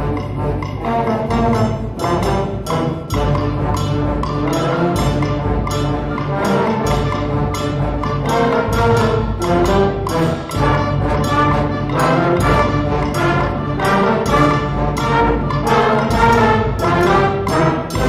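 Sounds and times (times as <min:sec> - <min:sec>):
concert band playing: 0:00.0 - 0:18.0.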